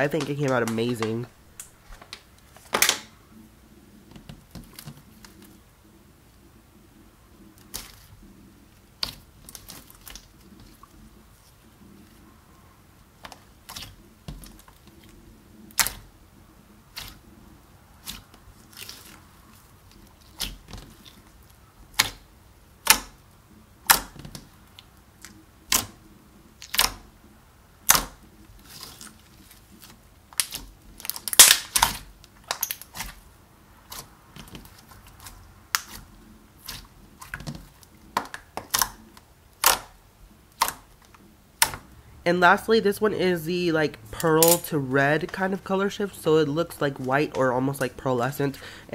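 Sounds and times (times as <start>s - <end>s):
slime popping while kneaded: 15.7s - 16.1s, 21.9s - 22.2s, 22.8s - 23.2s, 25.7s - 26.0s, 26.6s - 27.0s, 27.8s - 29.1s, 30.4s - 33.2s, 33.9s - 41.0s.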